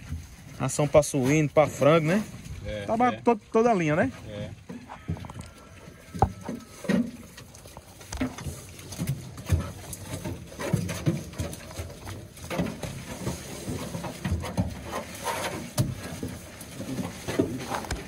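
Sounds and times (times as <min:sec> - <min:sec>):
hooves knocking and shuffling: 0:00.0 - 0:18.0
pigs grunting: 0:04.2 - 0:07.4.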